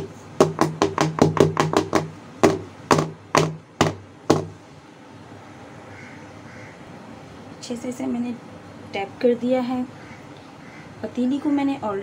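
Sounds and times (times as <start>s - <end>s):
metal cake pan knocking on table: 0.0s - 4.6s.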